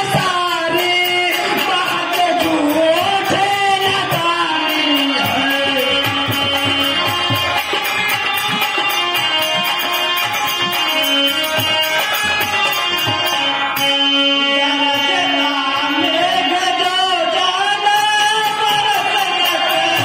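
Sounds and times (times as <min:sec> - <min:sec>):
person singing wavering melody: 0:00.0 - 0:07.5
drum beats: 0:00.0 - 0:16.8
harmonium playing: 0:00.0 - 0:20.0.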